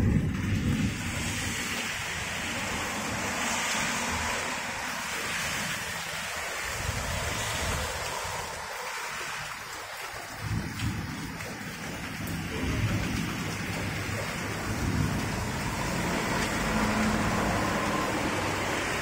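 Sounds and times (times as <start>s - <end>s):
low rumbles: 0.0s - 1.7s, 10.4s - 19.0s
heavy rain hissing: 0.0s - 19.0s.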